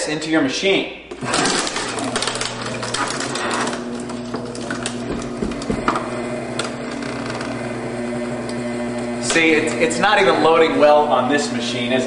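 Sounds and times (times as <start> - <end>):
paper shredder motor running: 1.1 - 12.0
plastic disc cracking and crunching: 1.4 - 5.7.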